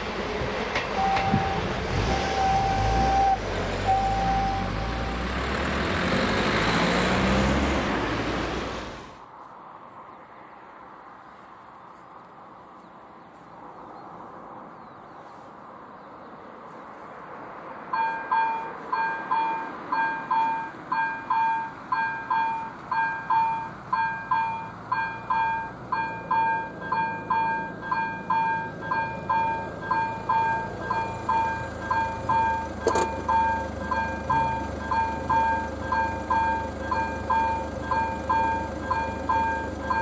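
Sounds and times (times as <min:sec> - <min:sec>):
low vehicle rumble: 0:00.0 - 0:09.2, 0:18.2 - 0:40.0
level crossing warning bell: 0:01.0 - 0:05.3, 0:17.9 - 0:40.0.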